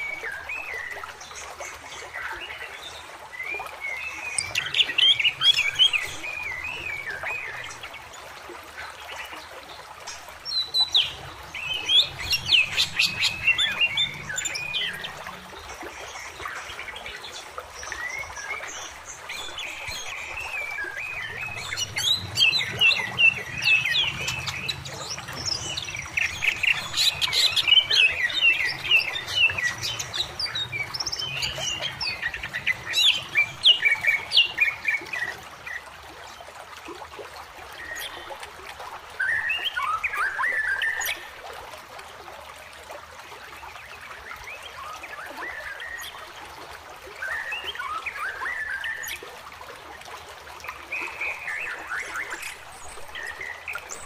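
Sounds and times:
songbirds chirping: 0:00.0 - 0:36.3
stream running over rocks: 0:00.0 - 0:54.0.

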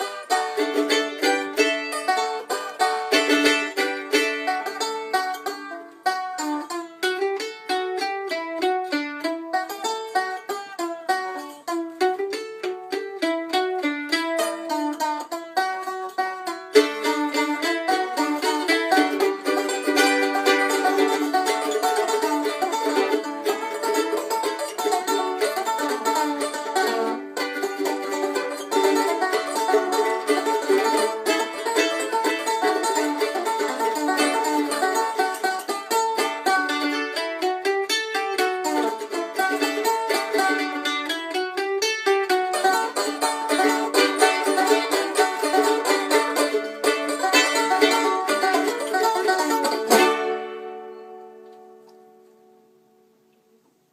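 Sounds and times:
banjo: 0:00.0 - 0:53.9
mandolin: 0:00.0 - 0:53.9.

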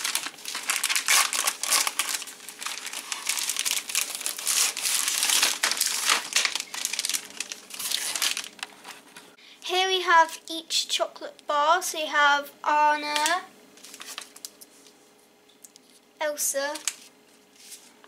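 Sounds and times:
plastic wrapper crinkling: 0:00.0 - 0:09.3, 0:13.8 - 0:14.7, 0:16.7 - 0:17.9.

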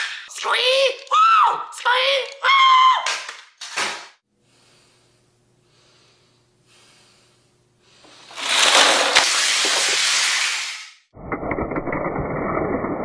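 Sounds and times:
faint breathing: 0:04.3 - 0:08.4.

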